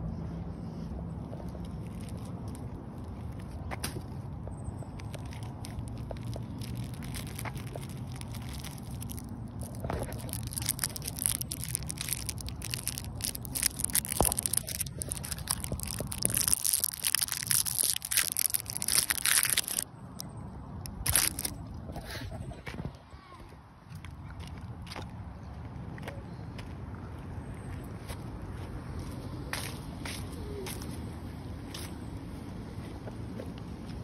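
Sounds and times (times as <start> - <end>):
dense crackling and crunching: 1.6 - 4.1, 4.8 - 22.6.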